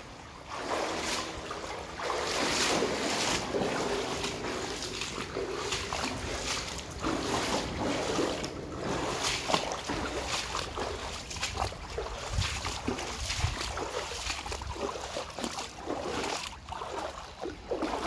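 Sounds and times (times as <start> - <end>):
brook burbling: 0.0 - 18.0
wind rumble on microphone: 5.8 - 15.2.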